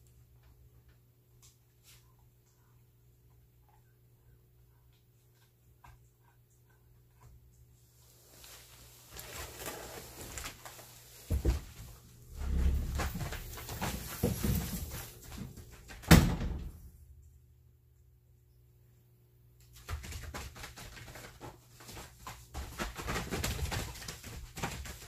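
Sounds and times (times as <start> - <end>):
thud: 16.1 - 16.9.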